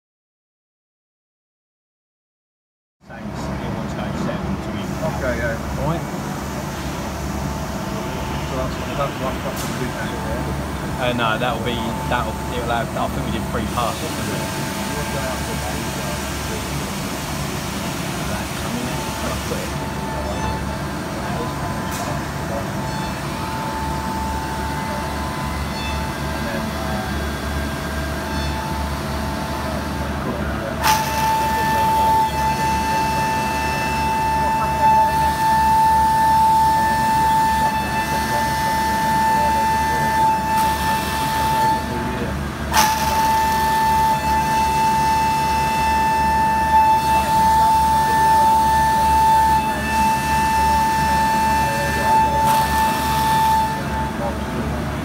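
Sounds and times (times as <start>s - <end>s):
milling cutter cutting metal: 9.4s - 54.5s
constant high tone: 18.3s - 40.5s.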